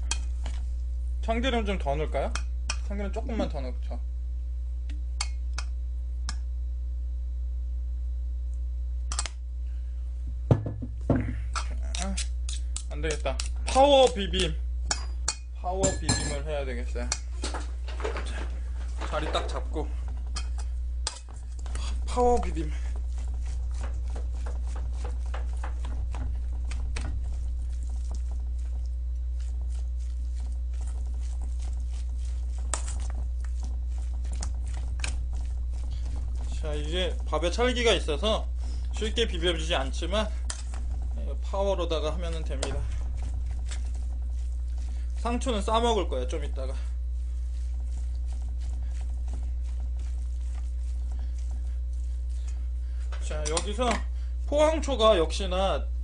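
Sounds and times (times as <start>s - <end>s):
steady low hum: 0.0s - 56.0s
glass bottle knocking on table: 10.5s - 11.3s
hand squishing sticky rice: 18.2s - 55.7s.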